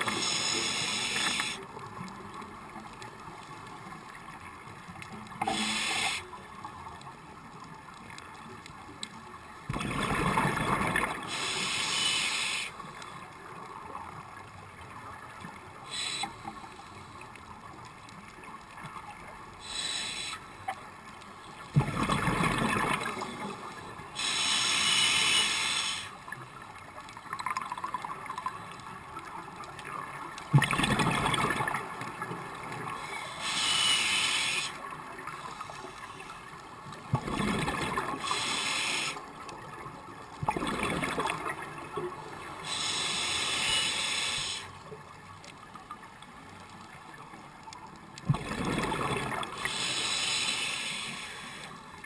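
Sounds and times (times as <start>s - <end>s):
breath hissing through regulator: 0.0s - 1.7s, 5.4s - 6.4s, 11.2s - 12.8s, 15.9s - 17.1s, 19.6s - 20.6s, 24.2s - 26.2s, 33.0s - 34.8s, 38.2s - 39.3s, 42.6s - 44.8s, 49.5s - 51.9s
exhaled bubbles gurgling: 9.7s - 12.7s, 21.6s - 26.4s, 29.8s - 35.4s, 36.7s - 44.7s, 48.2s - 52.0s.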